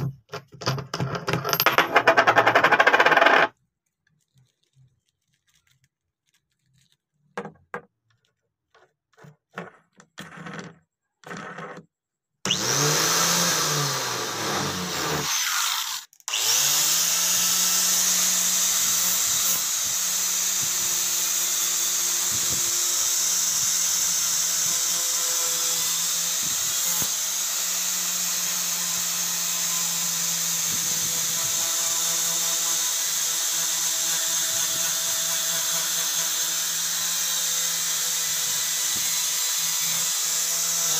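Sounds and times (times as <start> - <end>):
angle grinder motor hum: 12.5 - 20.1.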